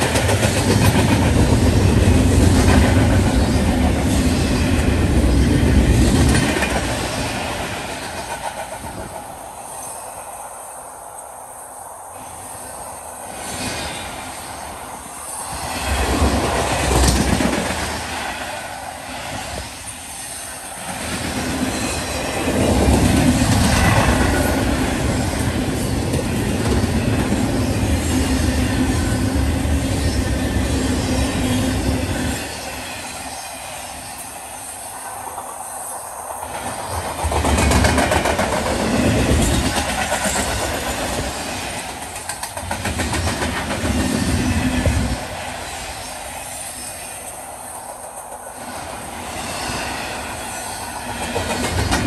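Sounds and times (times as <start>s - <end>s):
train rolling on track: 0.0s - 52.0s.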